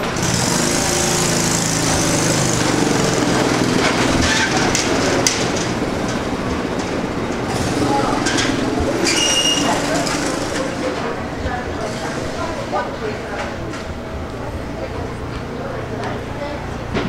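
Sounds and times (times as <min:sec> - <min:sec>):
small engine running: 0:00.0 - 0:11.0
sharp clicks and knocks: 0:03.7 - 0:07.6.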